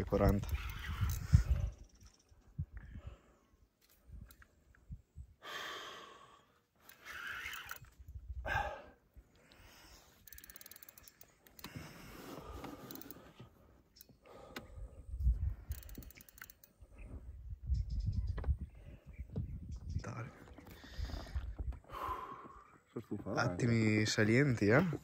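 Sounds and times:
person breathing hard and sighing: 0:08.4 - 0:10.9, 0:20.8 - 0:22.7.

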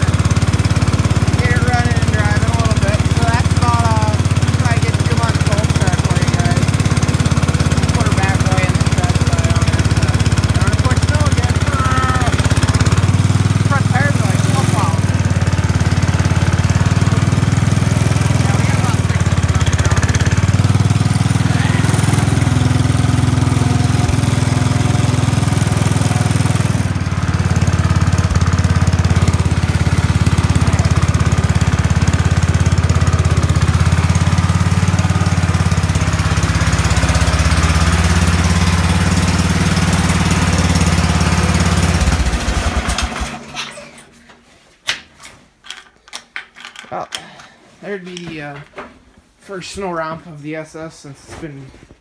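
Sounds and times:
garden tractor engine running: 0:00.0 - 0:44.1.

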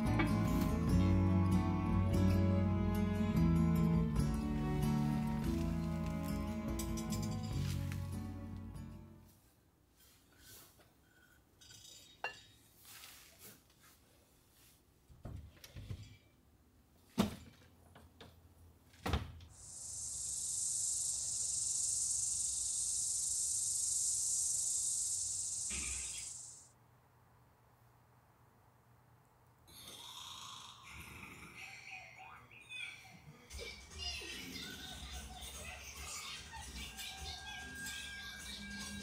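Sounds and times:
steady high-pitched hiss: 0:19.5 - 0:26.8.

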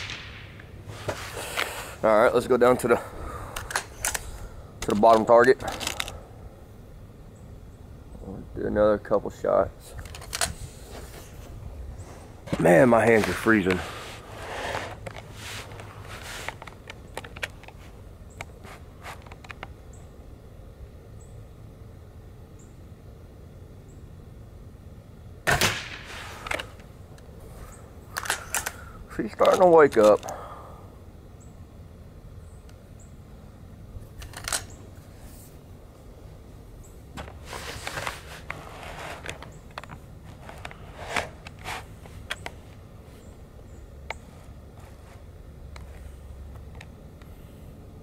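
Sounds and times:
air rifle shot: 0:00.0 - 0:00.8, 0:25.4 - 0:26.4
air rifle clicks: 0:03.5 - 0:06.2, 0:28.1 - 0:30.4
rustling scuffs: 0:10.6 - 0:16.8, 0:37.2 - 0:39.6.

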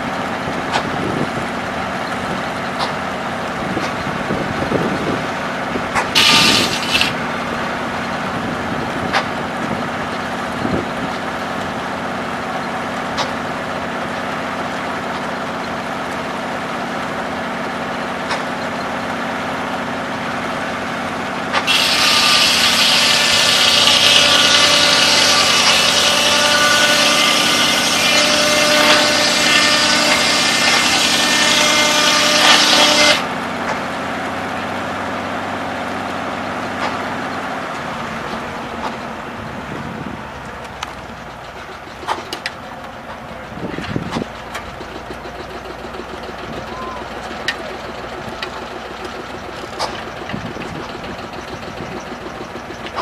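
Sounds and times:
engine drone: 0:00.0 - 0:53.0
circular saw blade running: 0:05.9 - 0:18.1, 0:20.2 - 0:33.4, 0:44.3 - 0:53.0
saw screaming through log: 0:06.0 - 0:07.2, 0:21.5 - 0:33.3.

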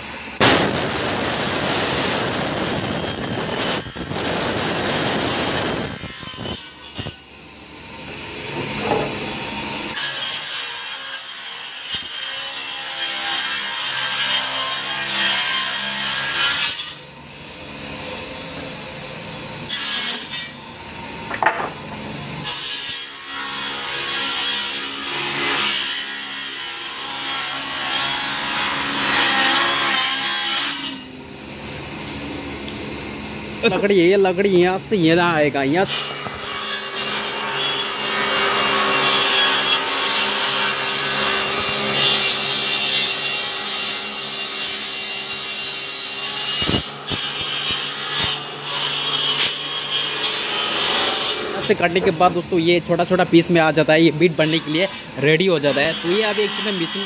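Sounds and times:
circular saw ripping wood: 0:00.4 - 0:07.2, 0:19.6 - 0:31.1, 0:33.6 - 0:57.0.

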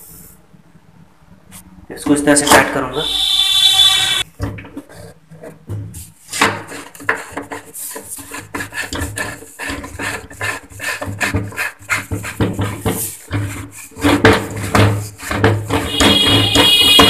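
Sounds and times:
plastic rubbing and scraping: 0:04.5 - 0:17.0.

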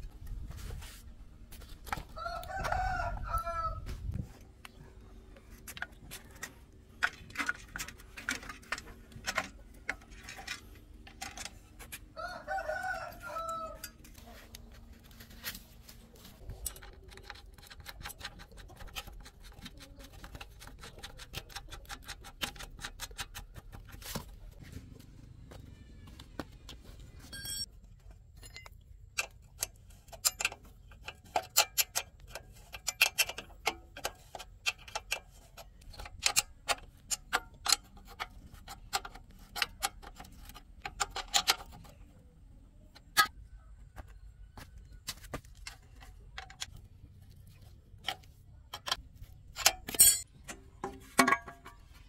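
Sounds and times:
rooster crowing: 0:02.1 - 0:03.9, 0:12.2 - 0:14.0.

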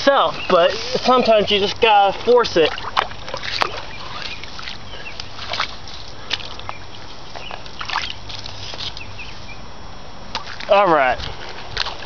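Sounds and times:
steady rushing hiss: 0:00.0 - 0:02.6
water sloshing around feet: 0:00.0 - 0:09.6, 0:10.3 - 0:12.0
small splashes and clicks: 0:01.7 - 0:09.1, 0:10.3 - 0:12.0.

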